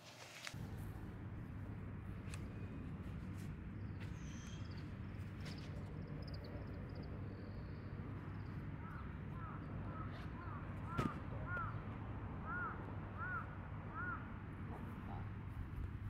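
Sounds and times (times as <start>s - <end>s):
low outdoor rumble: 0.4s - 16.0s
crows cawing: 8.8s - 11.8s, 12.4s - 14.4s.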